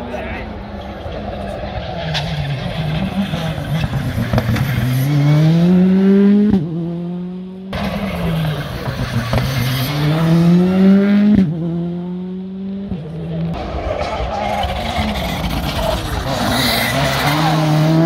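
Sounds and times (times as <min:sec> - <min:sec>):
car engine revving hard: 0:02.6 - 0:12.8, 0:14.7 - 0:18.0.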